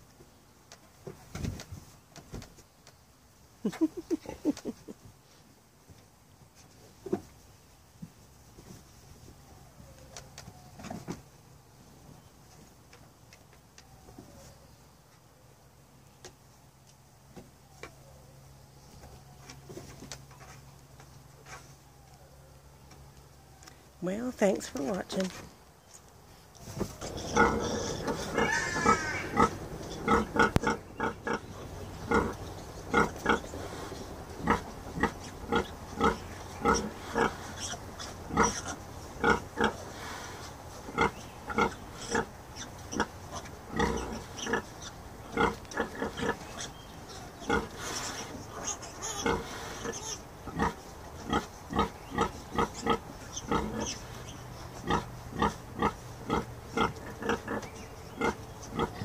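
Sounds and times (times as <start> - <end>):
sow grunting: 27.0 - 40.2, 40.9 - 54.0.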